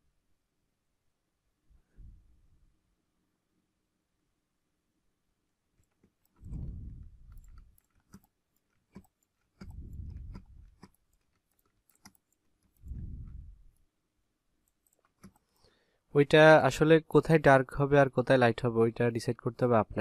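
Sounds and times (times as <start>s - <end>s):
computer clicks: 5.8s - 13.0s.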